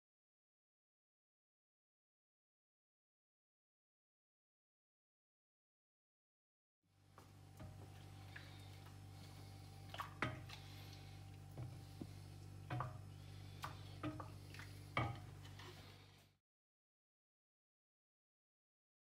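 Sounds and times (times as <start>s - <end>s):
steady low hum: 6.9s - 16.4s.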